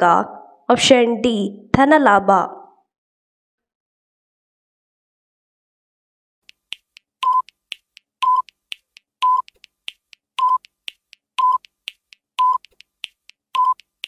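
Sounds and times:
light sharp ticks: 6.4s - 14.0s
countdown timer beep: 7.2s - 7.6s, 8.2s - 8.5s, 9.2s - 9.5s, 10.4s - 10.7s, 11.4s - 11.7s, 12.4s - 12.7s, 13.6s - 13.9s.

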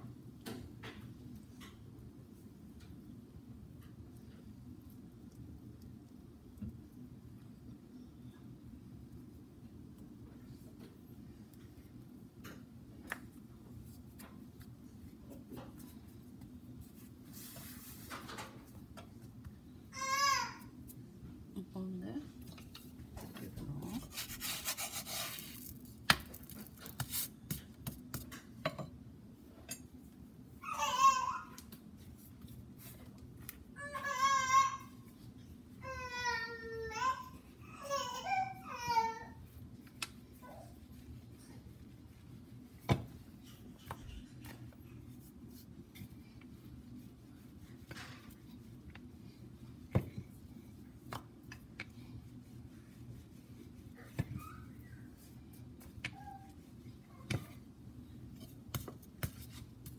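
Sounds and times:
rolling pin rubbing dough: 23.4s - 28.3s, 38.9s - 59.9s.

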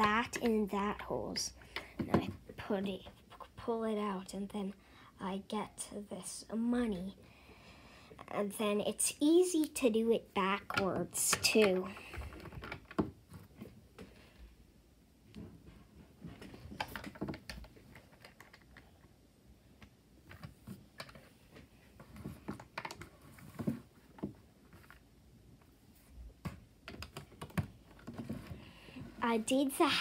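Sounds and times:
plastic bricks clicking: 16.8s - 19.0s.

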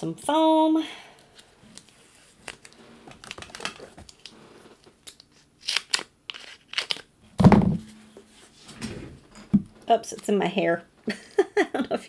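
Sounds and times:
loud thump: 7.4s - 8.2s.

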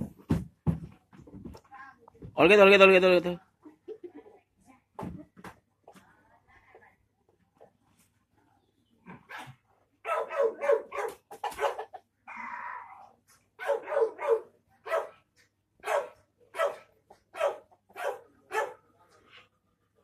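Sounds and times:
dog barking: 9.3s - 12.0s, 13.6s - 15.2s, 15.8s - 18.9s.

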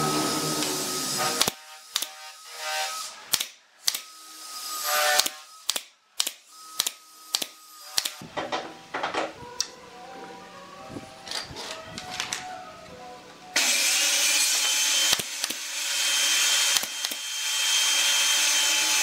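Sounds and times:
pneumatic nail gun shots: 0.6s - 2.2s, 3.3s - 4.1s, 5.0s - 8.3s, 13.6s - 19.0s.

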